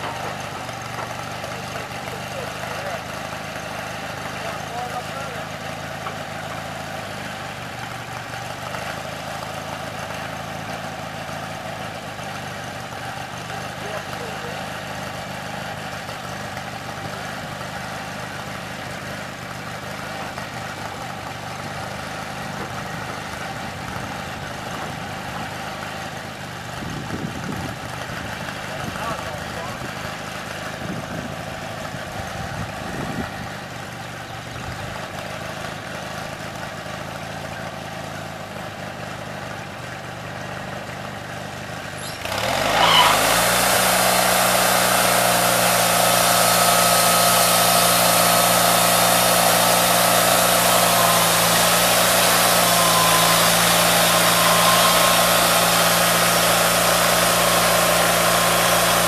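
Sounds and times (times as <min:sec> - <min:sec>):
sawmill engine revving: 0:00.0 - 0:59.0.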